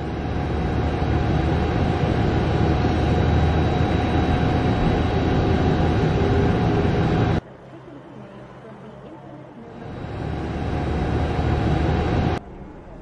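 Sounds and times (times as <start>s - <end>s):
motorised table hum and rumble: 0.0s - 7.4s, 9.7s - 12.4s.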